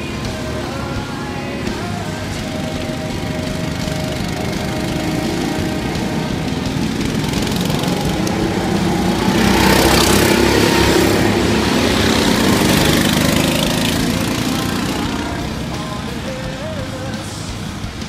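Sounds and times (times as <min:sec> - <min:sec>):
go-kart engines passing: 0:00.0 - 0:18.0.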